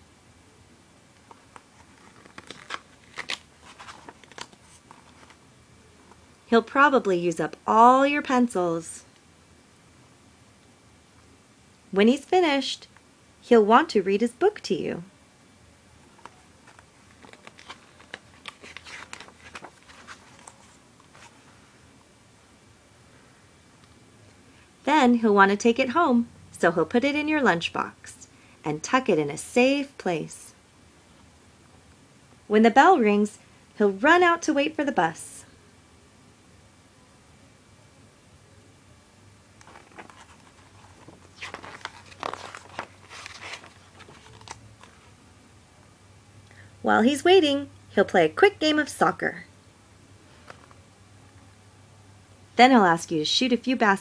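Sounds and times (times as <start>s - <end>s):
paper page turning: 1.2s - 5.4s, 16.2s - 21.4s, 39.6s - 45.1s.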